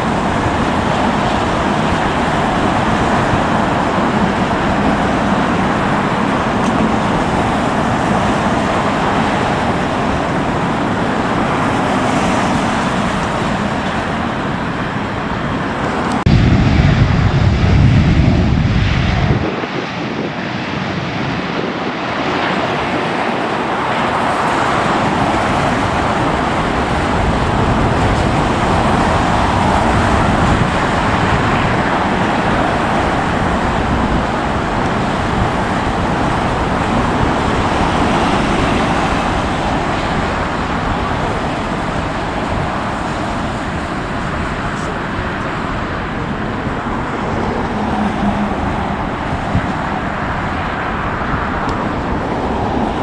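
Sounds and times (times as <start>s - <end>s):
jet airliner engines roaring: 0.0s - 53.0s
low rumble: 15.9s - 21.6s.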